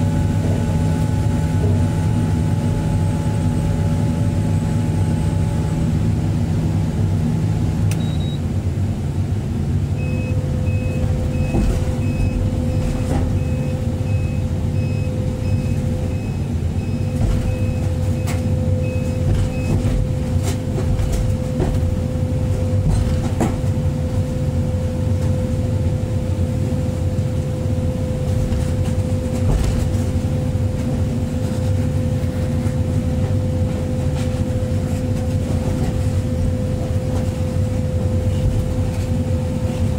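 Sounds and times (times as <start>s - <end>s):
diesel engine running under load: 0.0s - 39.9s
steady whine: 0.0s - 39.9s
short alarm beeps: 8.0s - 8.4s, 10.0s - 19.8s.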